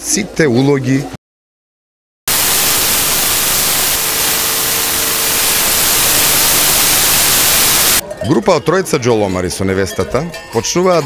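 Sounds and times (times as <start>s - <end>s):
loud static hiss: 2.3s - 8.0s.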